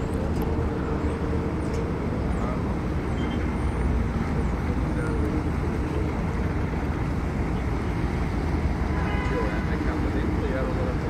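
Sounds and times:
ferry engine rumble: 0.0s - 11.0s
water wash: 0.0s - 11.0s
faint voices: 4.0s - 11.0s.

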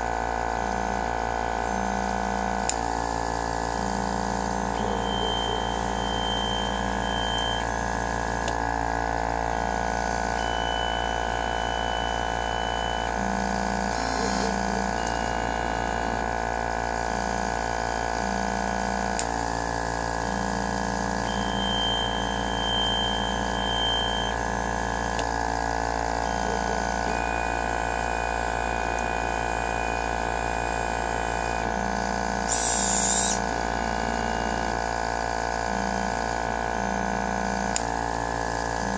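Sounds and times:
machine steady hum: 0.0s - 38.9s
motor tones: 0.0s - 38.9s.

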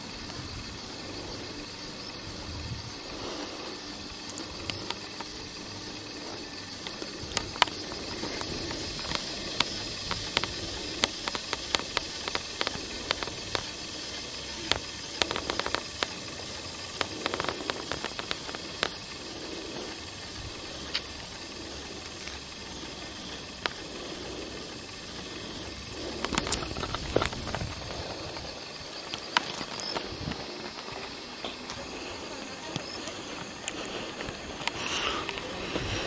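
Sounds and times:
steady hiss: 0.0s - 36.0s.

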